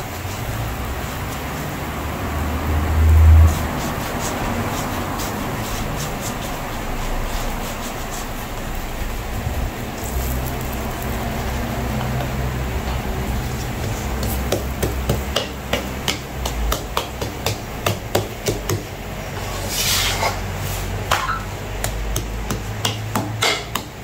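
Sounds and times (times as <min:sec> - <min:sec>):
wooden tool knocking on flatbread: 0:13.8 - 0:18.9, 0:21.1 - 0:24.0.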